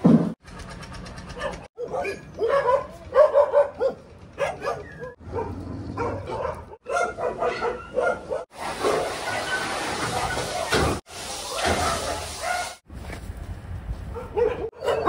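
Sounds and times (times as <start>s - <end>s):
dogs barking and whining: 1.2s - 12.8s, 14.2s - 15.0s.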